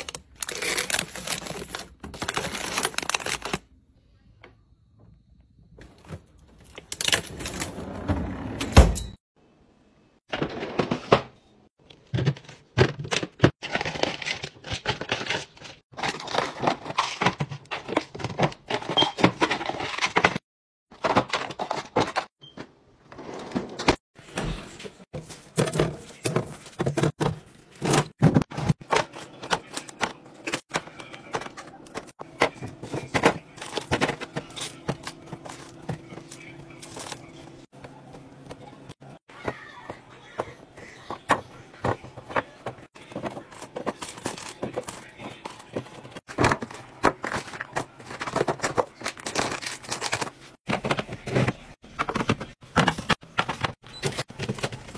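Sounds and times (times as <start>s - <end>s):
plastic items clicking and knocking: 25.5s - 37.3s, 41.1s - 54.9s.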